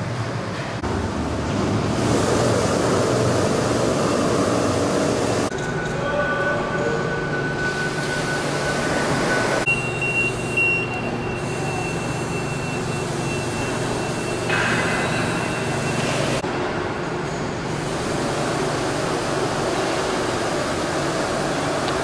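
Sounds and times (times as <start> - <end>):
factory machinery rumbling hum: 0.0 - 22.0
high machine whine: 0.8 - 16.5.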